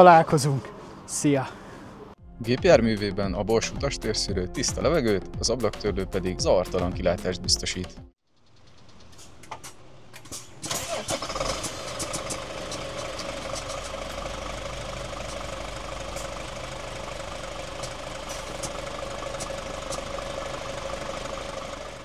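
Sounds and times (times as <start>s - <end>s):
engine cranking and idling: 8.3s - 22.0s
sharp clicks: 8.7s - 14.2s.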